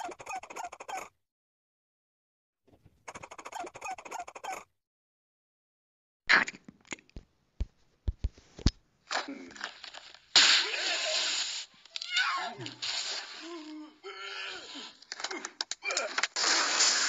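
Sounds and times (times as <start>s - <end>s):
sharp clicks and pops: 6.3s - 8.8s, 15.0s - 17.0s.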